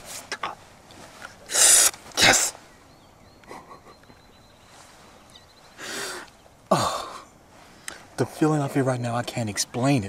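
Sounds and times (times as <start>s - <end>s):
man whispering: 0.0s - 0.7s, 1.5s - 2.6s.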